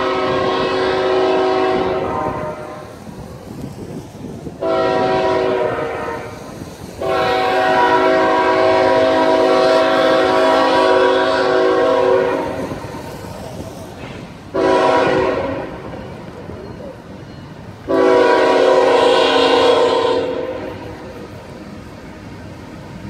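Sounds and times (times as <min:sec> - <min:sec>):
locomotive air horn blasts: 0:00.0 - 0:03.0, 0:04.6 - 0:13.0, 0:14.5 - 0:16.0, 0:17.8 - 0:21.2
faint train rumble: 0:00.0 - 0:23.0.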